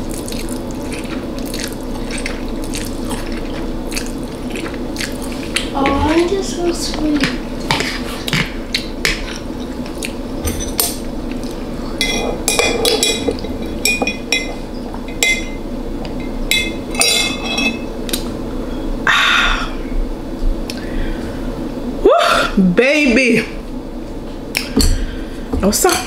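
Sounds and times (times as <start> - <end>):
cutlery clinking on a plate: 12.0 - 15.6.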